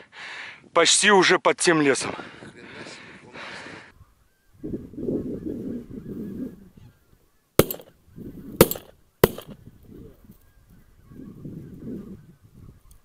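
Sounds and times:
shotgun shots: 7.6 - 7.9, 8.6 - 9.6.

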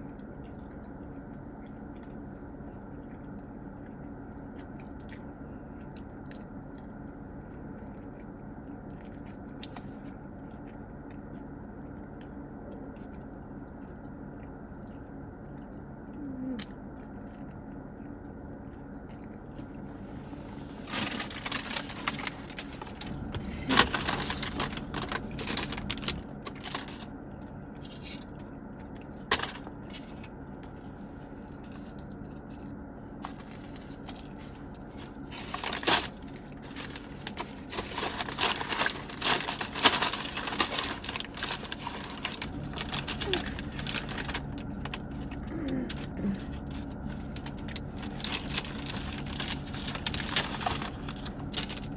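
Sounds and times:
low car cabin hum: 0.0 - 51.9
paper bag rustling: 20.7 - 27.1, 33.2 - 51.9.

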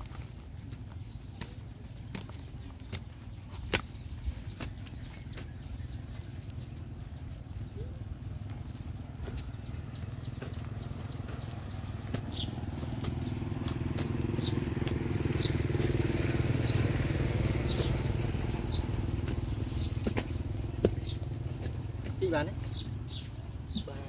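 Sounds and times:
small engine running: 5.7 - 23.3.

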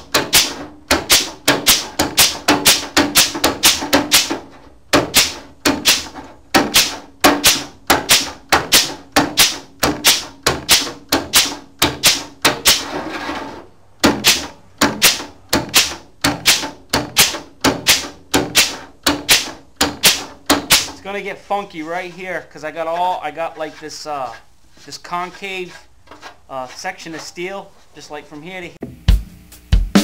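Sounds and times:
air tool clacking on steel: 0.0 - 12.9, 14.1 - 21.0.

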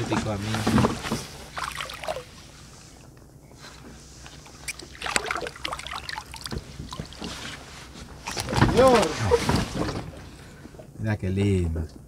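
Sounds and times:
water splashing and dripping: 1.5 - 2.4, 4.6 - 7.6.

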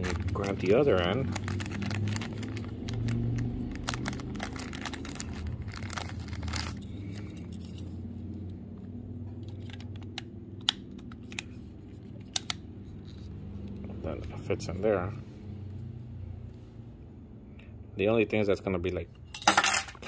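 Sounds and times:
plastic bag crinkling: 0.0 - 7.8
steady low hum: 0.0 - 18.2.

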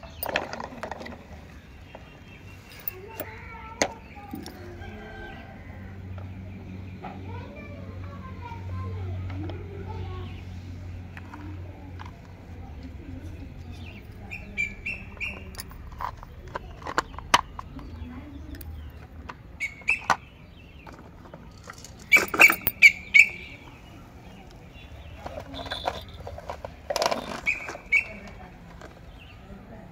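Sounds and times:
plastic toys clicking and knocking: 0.0 - 5.0, 11.0 - 23.5, 24.2 - 29.3.

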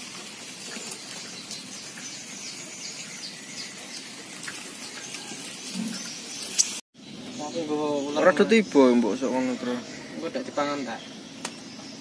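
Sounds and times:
songbird chirping: 0.9 - 12.0.

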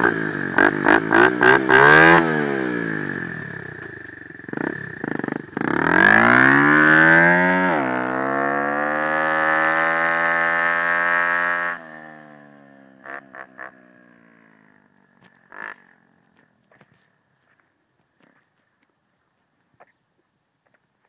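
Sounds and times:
pit bike engine revving: 0.0 - 14.8, 15.4 - 16.2.

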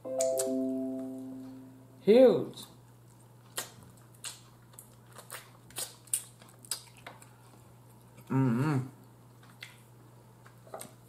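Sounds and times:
wet chewing and lip smacks: 2.8 - 8.3, 9.0 - 11.0
person humming mmm: 8.3 - 8.9.

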